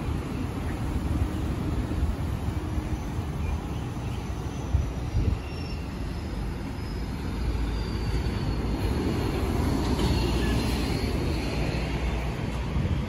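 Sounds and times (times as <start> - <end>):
bus engine and tyre rumble: 0.0 - 13.0.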